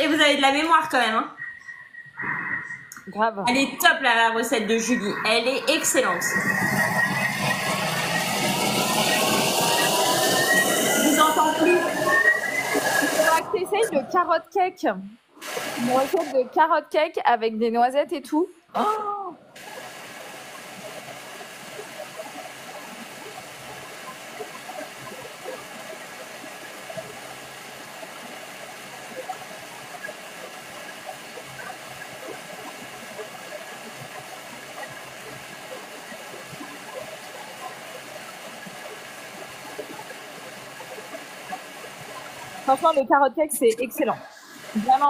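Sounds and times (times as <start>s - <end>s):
food mixer rushing noise: 4.9s - 13.8s.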